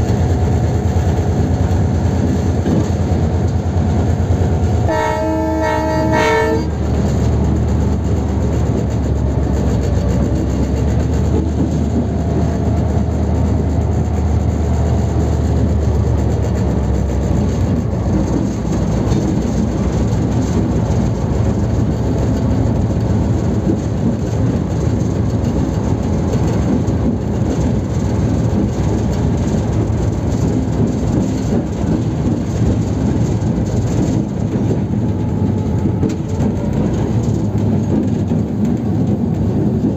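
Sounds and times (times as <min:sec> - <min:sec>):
locomotive engine droning: 0:00.0 - 0:39.9
wheels clattering over rails: 0:00.0 - 0:39.9
locomotive horn blast: 0:04.8 - 0:06.8.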